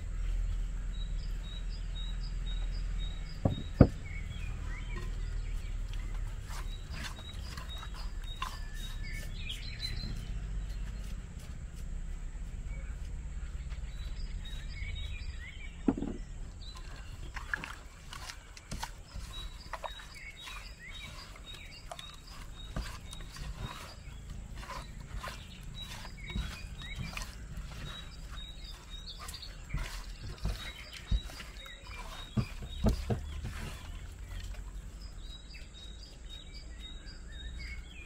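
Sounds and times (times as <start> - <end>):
birds chirping: 0.0 - 38.0
sharp knock on clay pot: 3.4 - 4.0
hands squishing wet food: 4.0 - 11.1, 16.5 - 34.8.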